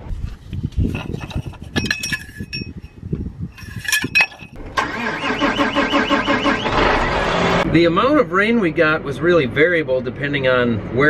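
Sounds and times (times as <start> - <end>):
diesel engine cranking: 3.8 - 7.8.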